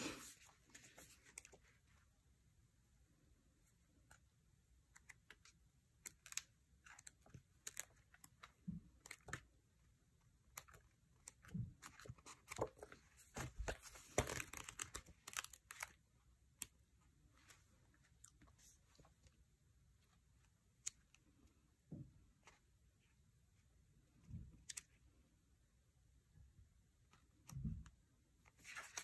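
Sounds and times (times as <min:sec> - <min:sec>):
sticker sheets crinkling: 0:04.9 - 0:09.5, 0:10.5 - 0:16.8, 0:28.5 - 0:29.0.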